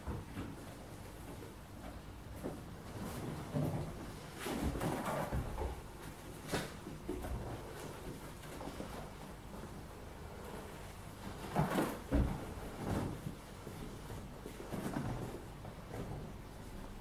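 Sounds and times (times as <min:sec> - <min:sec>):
soft knocks and rustling on sofa: 0:11.1 - 0:16.9.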